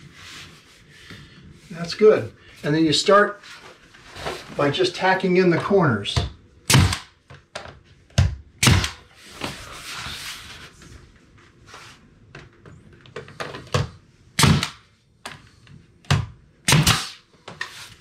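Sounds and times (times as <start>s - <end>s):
nail gun firing: 6.7s - 7.1s, 8.6s - 9.1s, 14.4s - 14.8s, 16.7s - 17.2s.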